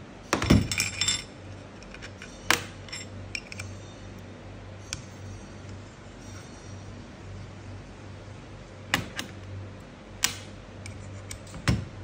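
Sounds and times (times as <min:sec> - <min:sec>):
steel parts clinking: 0:00.4 - 0:04.2.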